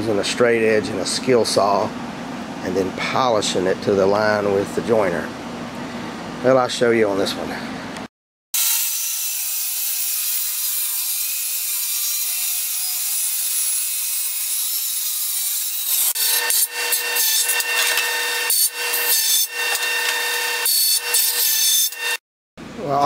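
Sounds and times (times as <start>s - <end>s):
circular saw cutting wood: 8.6s - 22.2s
jointer trimming wood edge: 8.6s - 22.2s.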